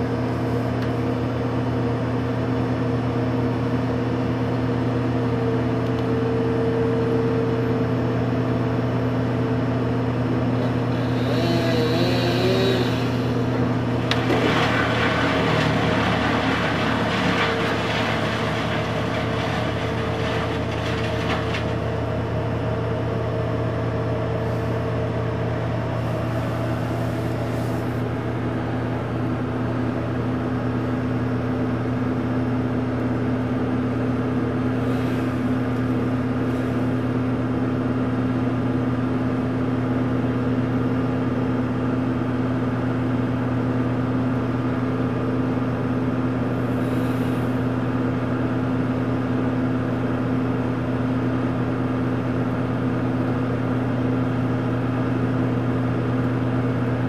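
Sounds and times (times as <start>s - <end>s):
truck engine running: 4.4s - 40.1s.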